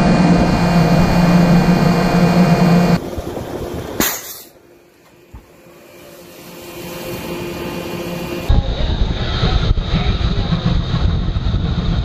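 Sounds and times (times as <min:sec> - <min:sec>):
water rushing along hull: 0:00.0 - 0:04.1, 0:05.6 - 0:08.5
sea noise: 0:00.0 - 0:08.5
ship machinery hum: 0:00.0 - 0:08.5.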